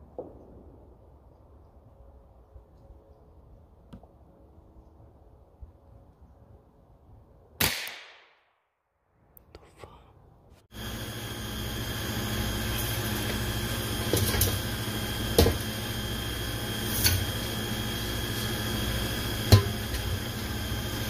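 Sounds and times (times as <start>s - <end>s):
machine hum with high whine: 10.7s - 21.0s.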